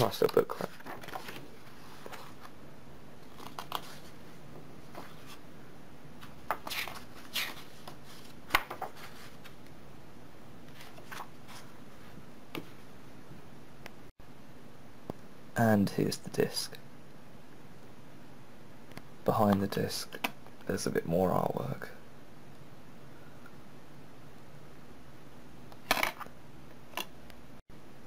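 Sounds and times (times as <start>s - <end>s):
paper pages turning: 0.0s - 2.6s, 3.2s - 4.2s, 6.2s - 9.6s, 10.7s - 11.8s.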